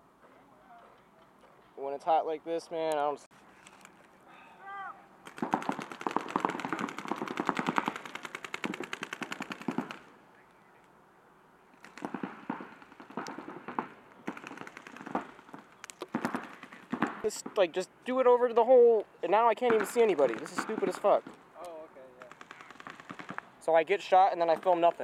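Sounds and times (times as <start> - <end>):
paintball markers firing: 5.3 - 10.1, 11.8 - 17.6, 19.6 - 23.5.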